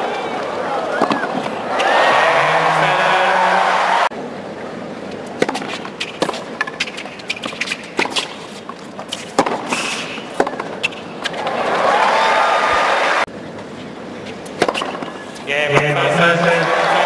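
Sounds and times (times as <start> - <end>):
racket hitting tennis ball: 1.0 - 2.5, 5.3 - 11.5, 14.4 - 16.0
tennis ball bouncing: 1.0 - 2.5, 5.2 - 11.5, 14.4 - 16.0.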